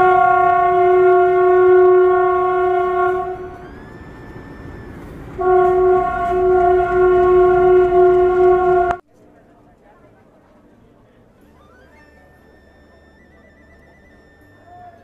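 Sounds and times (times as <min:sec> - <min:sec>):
locomotive air horn blasts: 0:00.0 - 0:09.0.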